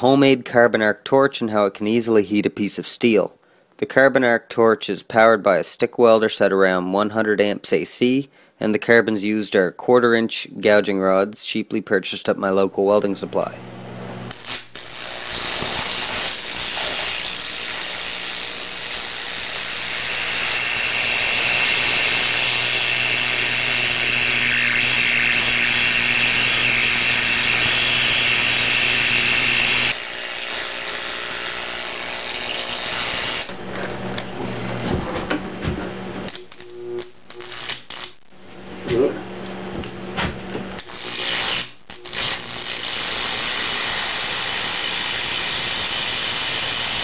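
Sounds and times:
mains hum: 0:00.0 - 0:30.0, 0:30.7 - 0:47.0
arc torch hissing buzz: 0:13.3 - 0:34.8, 0:36.1 - 0:38.8, 0:39.4 - 0:47.0.

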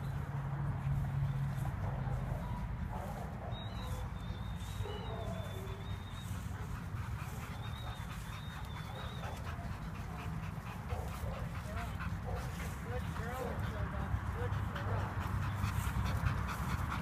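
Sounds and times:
dogs whining: 0:03.5 - 0:06.6, 0:07.5 - 0:11.1.

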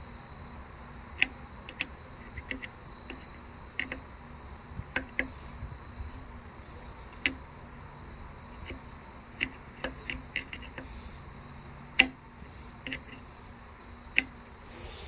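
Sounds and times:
faint steady hum: 0:00.0 - 0:15.0
metal probe and connectors clicking: 0:01.2 - 0:04.1, 0:04.8 - 0:05.5, 0:06.9 - 0:07.4, 0:08.5 - 0:11.0, 0:11.9 - 0:13.3, 0:14.1 - 0:14.6.

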